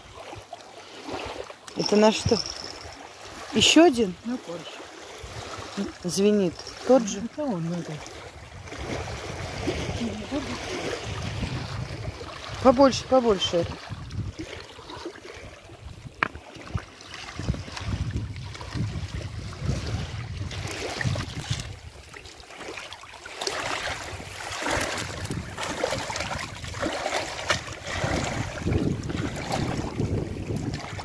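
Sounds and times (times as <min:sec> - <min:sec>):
water splashing and sloshing: 0:00.0 - 0:31.0
wind rumble on microphone: 0:05.2 - 0:06.9, 0:08.1 - 0:22.1, 0:23.8 - 0:31.0.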